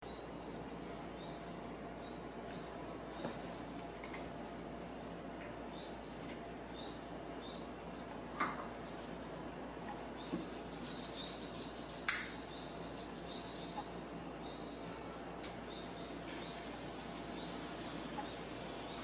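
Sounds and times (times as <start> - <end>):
birds chirping: 0.0 - 19.0
lighter strike click: 12.1 - 12.4.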